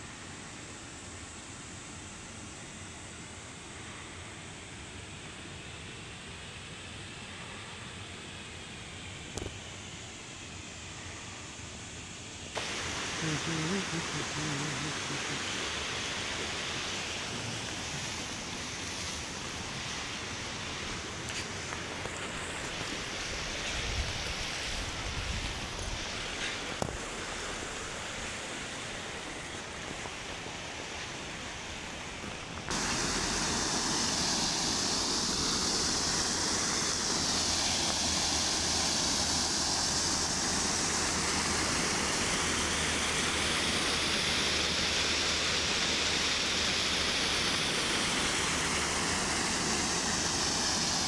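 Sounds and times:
water rushing over a weir: 12.5 - 51.0.

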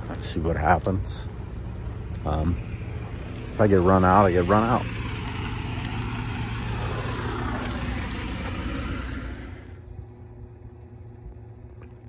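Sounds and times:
vehicle low hum: 0.0 - 12.0
vehicle hiss: 1.4 - 9.8.

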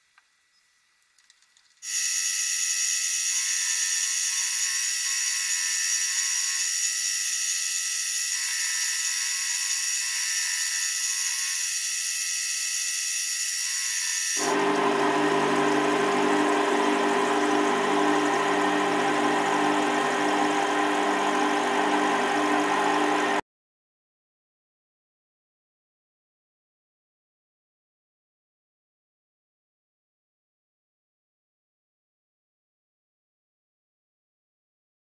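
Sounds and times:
metal lathe high-pitched whine: 1.9 - 23.4.

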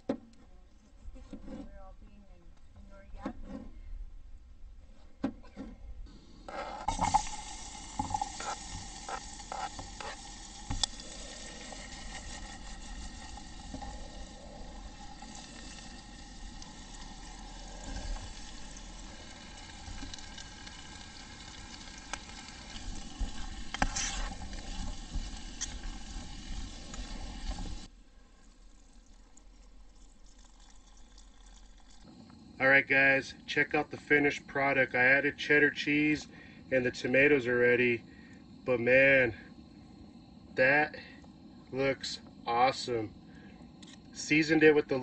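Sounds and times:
vegetables sizzling in a pot: 6.5 - 32.1.

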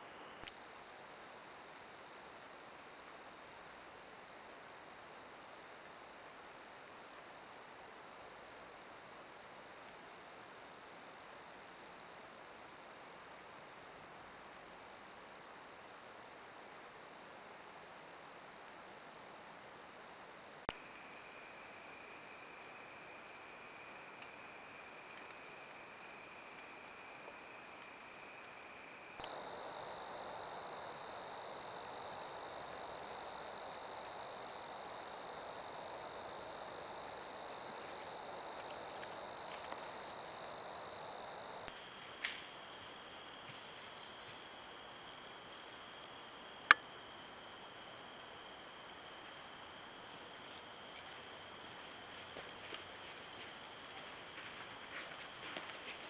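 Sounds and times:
crickets trilling: 20.7 - 56.0.

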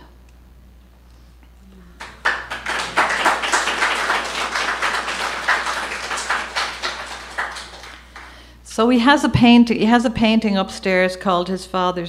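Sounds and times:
audience applauding: 1.8 - 8.4.

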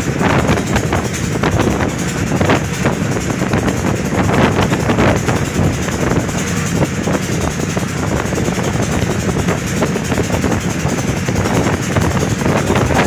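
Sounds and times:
motorboat engine running: 0.0 - 13.0
water noise: 0.0 - 13.0
wind noise: 0.0 - 13.0.

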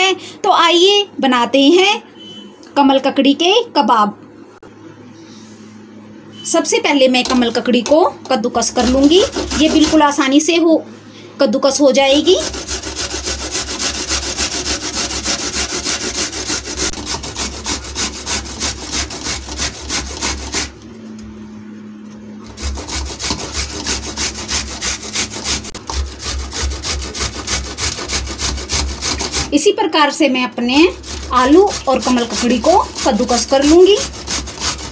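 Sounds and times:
grating on metal box grater: 8.6 - 10.3, 11.9 - 20.8, 22.4 - 29.7, 30.6 - 34.9.

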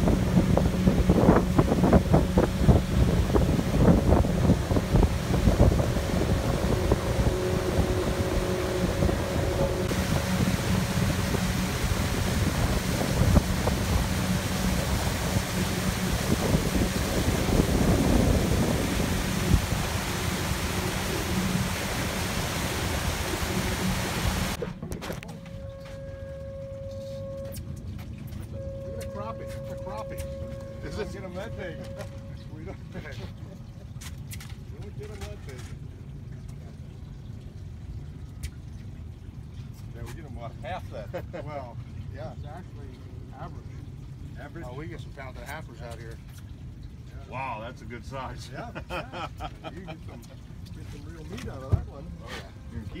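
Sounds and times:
wind buffeting microphone: 0.0 - 25.1
steady hum: 0.0 - 33.2
boat motor running: 0.0 - 53.0.

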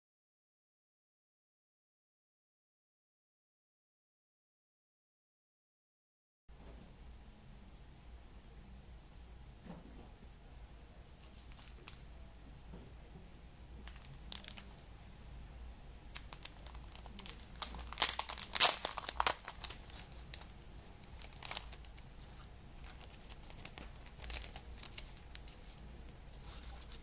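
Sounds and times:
plastic wrapping crinkling: 13.8 - 14.8, 16.0 - 27.0.

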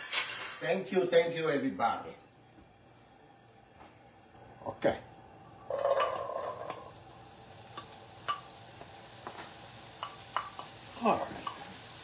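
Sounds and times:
meat sizzling in skillet: 4.6 - 12.0
oil popping: 5.7 - 7.0.

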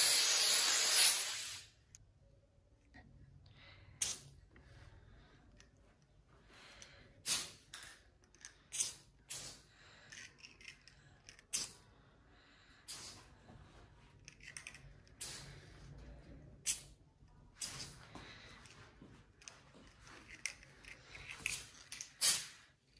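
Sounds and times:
spray can hissing: 0.0 - 1.7, 22.2 - 22.6.

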